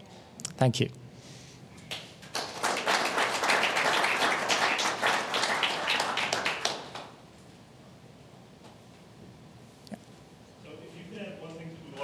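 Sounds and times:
audience applauding: 0:01.9 - 0:07.2.

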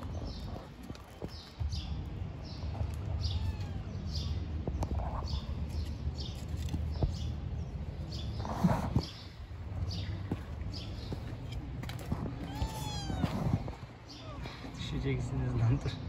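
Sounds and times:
bird chirping: 0:14.0 - 0:16.0.

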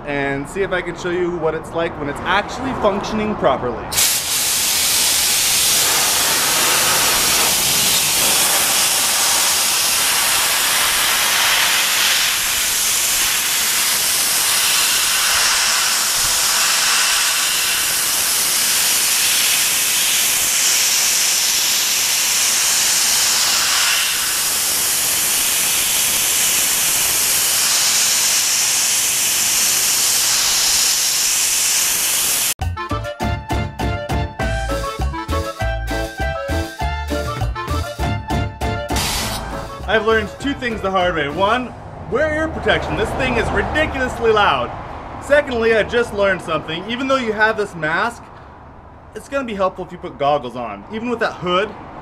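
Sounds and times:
abrasive blaster hissing: 0:04.0 - 0:32.6, 0:38.9 - 0:39.7.

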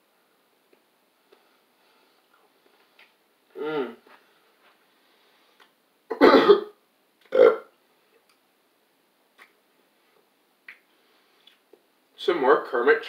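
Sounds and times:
man burping loudly: 0:03.6 - 0:04.1, 0:07.3 - 0:07.7.

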